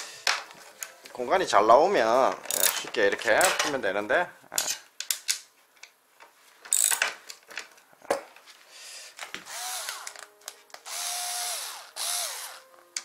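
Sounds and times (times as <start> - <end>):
metal tool clicks: 2.5 - 3.7
handheld power tool motor: 9.4 - 10.2, 10.8 - 12.6.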